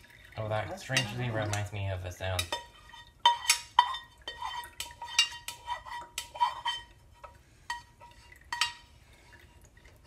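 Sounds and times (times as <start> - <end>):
saucepan clinking against metal strainer: 0.7 - 6.9.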